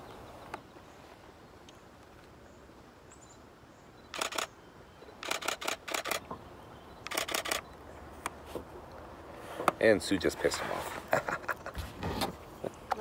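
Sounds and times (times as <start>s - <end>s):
camera shutter rapid clicks: 4.1s - 4.5s, 5.2s - 6.2s, 7.1s - 7.6s.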